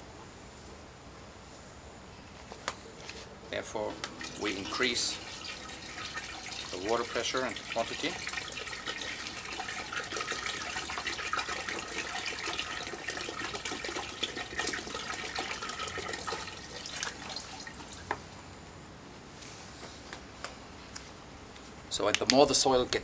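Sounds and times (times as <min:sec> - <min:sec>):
water pouring and splashing: 0:03.8 - 0:18.1.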